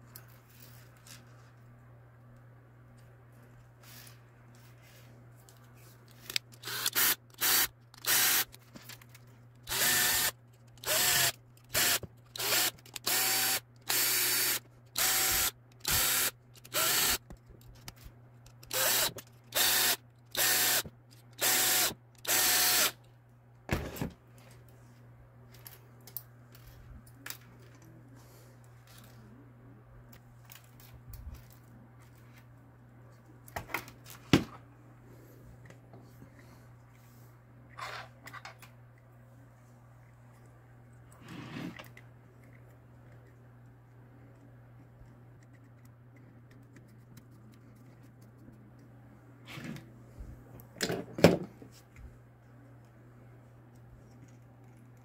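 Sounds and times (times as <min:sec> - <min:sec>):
small electric motor whirring: 0:06.3 - 0:08.6, 0:09.7 - 0:17.2, 0:18.7 - 0:23.0.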